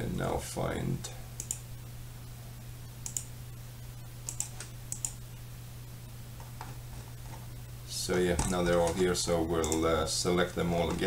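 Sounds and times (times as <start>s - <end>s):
steady low hum: 0.0s - 11.0s
computer mouse clicking: 1.4s - 1.6s, 3.0s - 3.3s, 4.2s - 5.2s.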